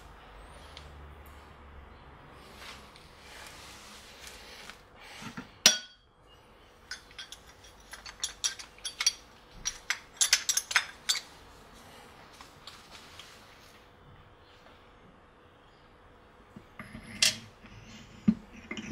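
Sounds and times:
steel gears clinking and knocking: 6.9s - 11.3s.

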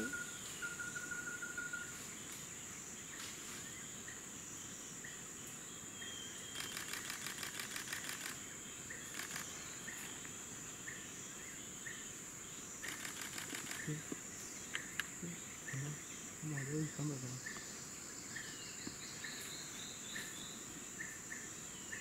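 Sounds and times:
faint insect chirps: 0.0s - 22.0s
insects droning: 0.0s - 22.0s
insect ticking trill: 6.2s - 11.0s, 11.8s - 17.8s
insect buzzing clicks: 6.4s - 10.3s, 12.8s - 15.2s.

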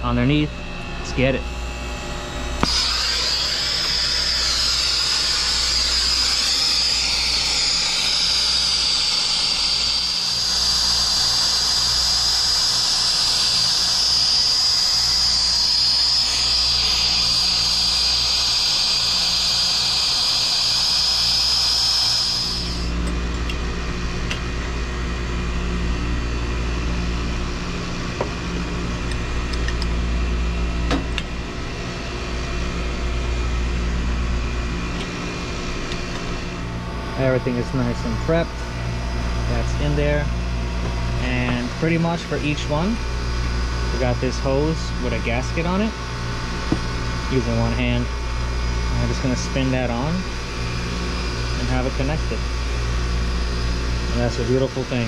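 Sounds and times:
low steady hum: 0.0s - 55.0s
torch flame hissing: 2.6s - 23.0s.

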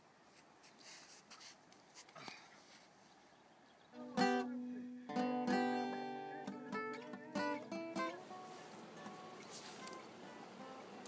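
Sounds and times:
acoustic guitar chords: 3.9s - 11.0s.

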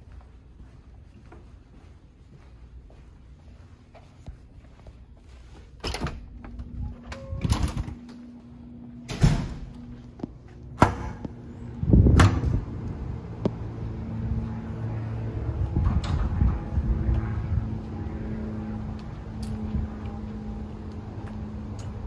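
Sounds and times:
steady low hum: 0.0s - 22.0s
heavy door thud: 9.1s - 9.7s.

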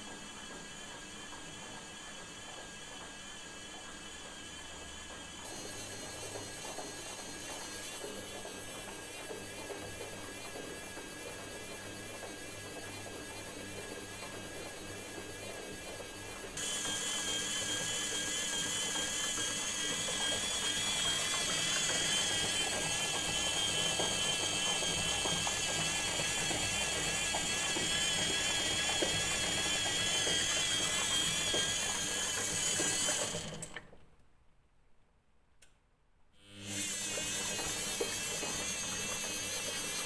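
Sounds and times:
washing machine motor whining: 0.0s - 34.0s, 36.4s - 40.0s.

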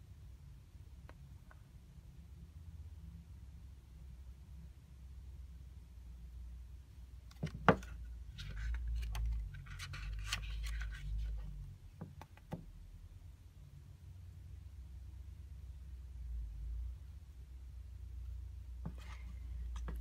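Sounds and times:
pages being turned: 7.4s - 11.5s.

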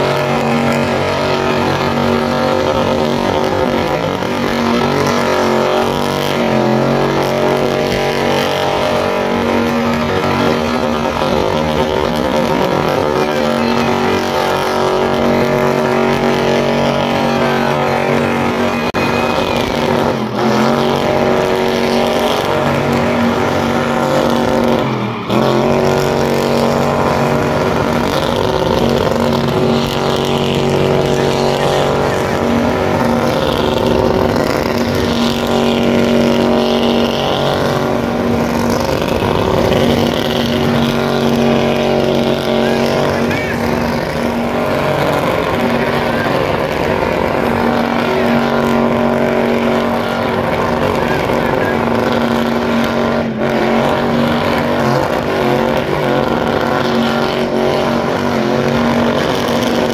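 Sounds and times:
car engine revving high: 0.0s - 59.9s.

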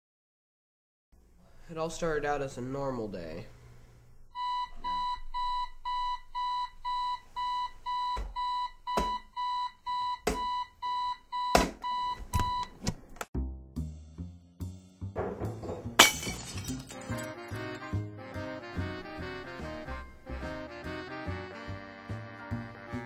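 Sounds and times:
loud thumps: 15.2s - 16.1s.

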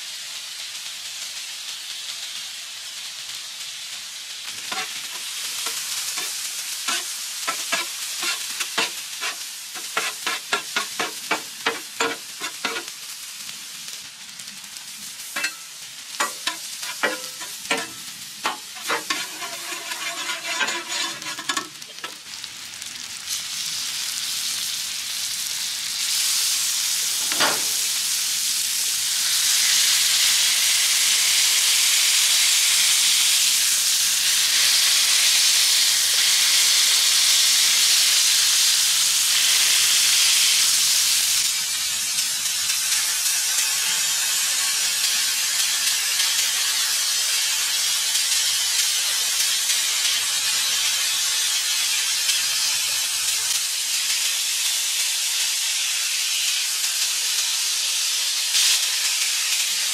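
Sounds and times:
beef patties sizzling: 0.0s - 59.9s
vegetables sizzling on griddle: 0.0s - 59.9s
metal spatula scraping griddle: 4.6s - 13.0s, 15.3s - 22.2s.

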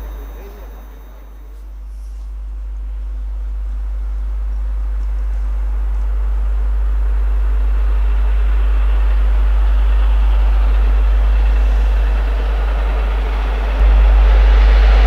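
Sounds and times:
steam locomotive rushing noise: 0.0s - 1.7s
heavy low rumble: 0.0s - 15.0s.

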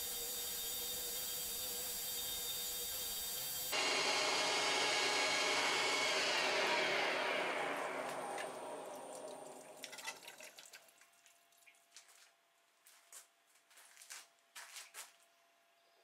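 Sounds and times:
lathe and coolant flow: 0.0s - 10.6s.

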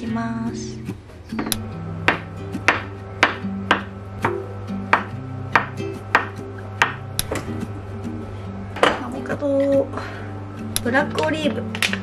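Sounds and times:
light background music: 0.0s - 12.0s
knife chopping on a wooden board: 1.5s - 7.4s.

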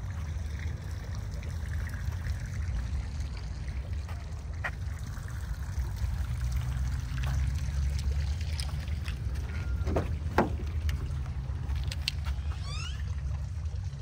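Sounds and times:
car door unlatching: 9.4s - 11.1s.

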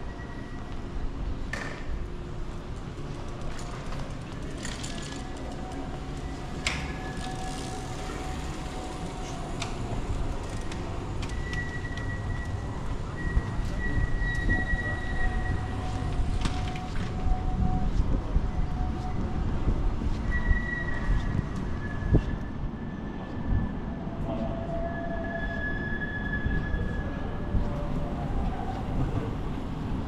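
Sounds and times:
tram wheels squealing: 0.0s - 2.2s, 3.0s - 30.0s
low rumble of traffic: 0.0s - 30.0s.

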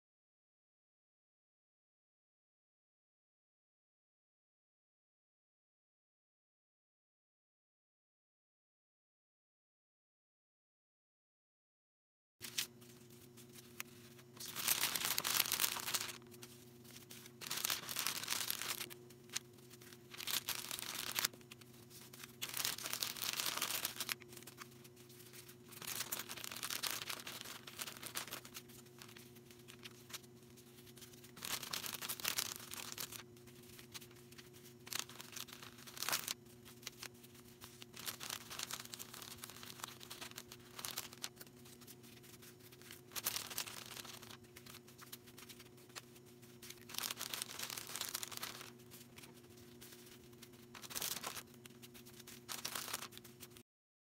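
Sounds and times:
low electrical hum: 12.4s - 53.6s
packing materials tearing and crinkling: 12.4s - 53.6s.

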